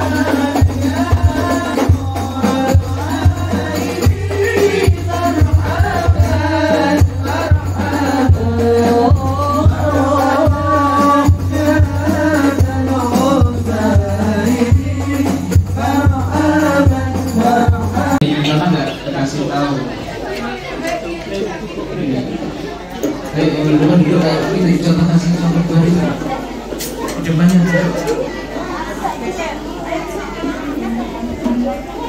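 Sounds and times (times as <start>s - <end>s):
hand drum beat: 0.0s - 18.2s
men singing devotional songs: 0.0s - 19.1s.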